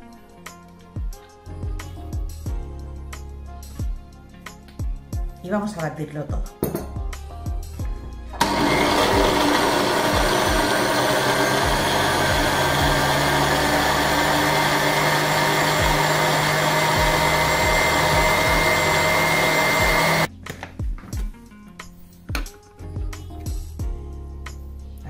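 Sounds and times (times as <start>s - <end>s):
jug blender running: 8.4s - 20.3s.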